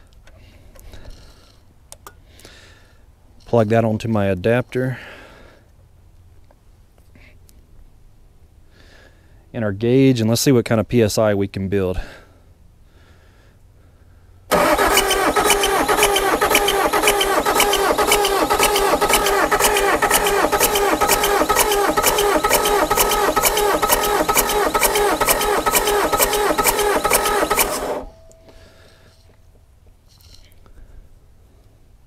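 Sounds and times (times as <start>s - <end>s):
diesel engine cranking by starter: 14.5s - 28.8s.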